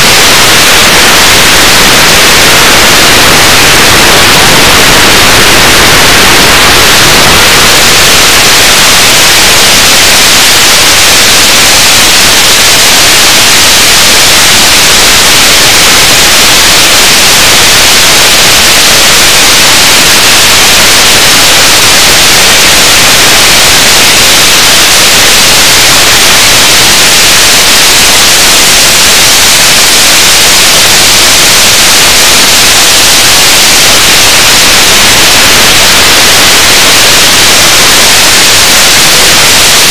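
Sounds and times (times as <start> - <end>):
static hiss: 0.0 - 29.0.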